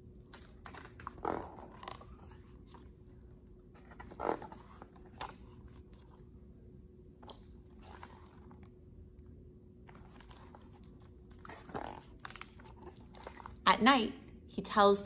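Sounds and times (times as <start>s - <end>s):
faint steady hum: 0.0s - 15.0s
book pages rustling: 0.2s - 6.3s, 7.2s - 8.8s, 9.8s - 13.6s.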